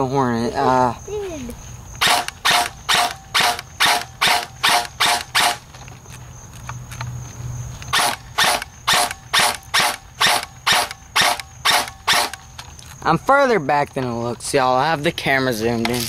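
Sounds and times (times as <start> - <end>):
airsoft rifle firing single shots: 2.0 - 5.6, 7.9 - 12.4.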